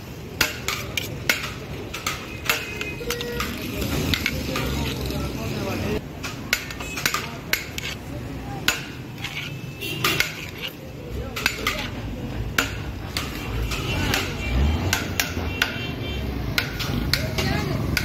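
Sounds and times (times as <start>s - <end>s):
metal spoon scraping a pot: 0.6s - 5.3s, 6.6s - 8.1s, 8.7s - 10.8s.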